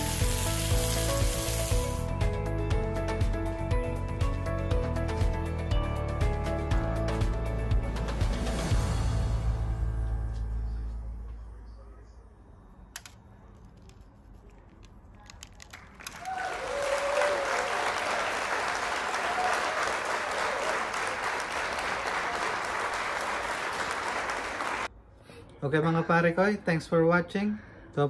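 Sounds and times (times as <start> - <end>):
applause: 15.8 - 24.9.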